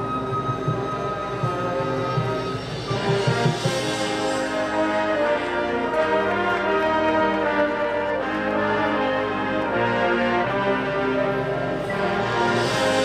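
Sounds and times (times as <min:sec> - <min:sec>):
marching band playing: 0:00.0 - 0:13.0.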